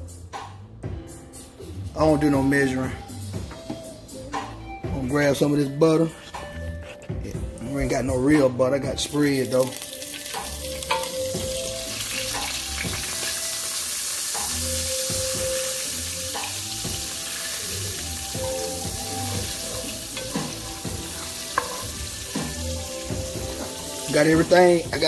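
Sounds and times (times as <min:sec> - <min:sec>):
butter sizzling in oil: 0:09.3 - 0:25.0
spoon knocking against pot: 0:21.5 - 0:22.0.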